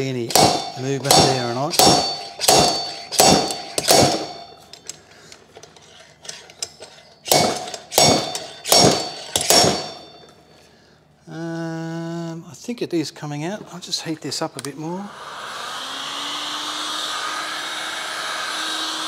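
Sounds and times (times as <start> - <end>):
slide hammer clanging on steel: 0.0 - 10.4.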